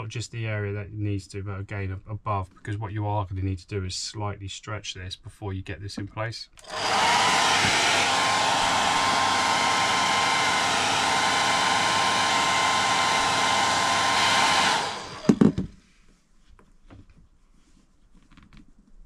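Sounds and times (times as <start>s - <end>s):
hair dryer running: 6.6s - 15.7s
knocks: 15.2s - 15.8s.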